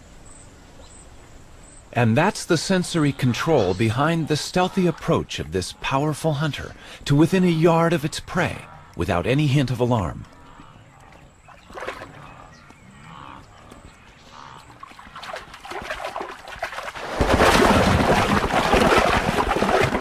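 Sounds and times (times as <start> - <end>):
water splashing and thrashing: 11.5 - 12.3, 14.6 - 20.0.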